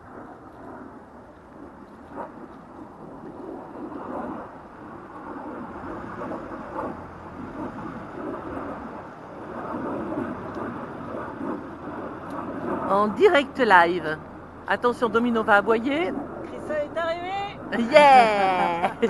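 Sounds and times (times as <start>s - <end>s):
diesel engine running: 5.8s - 9.8s, 11.6s - 18.3s.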